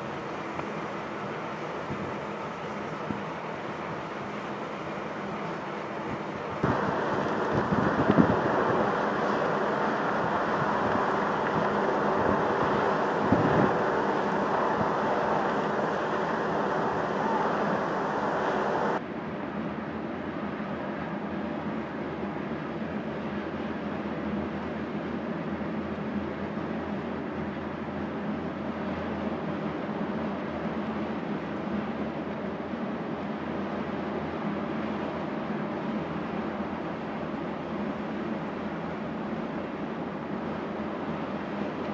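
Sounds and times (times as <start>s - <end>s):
diesel engines droning: 0.0s - 19.0s
idling ship engines rumble: 0.0s - 41.9s
wind noise on microphone: 0.0s - 41.9s.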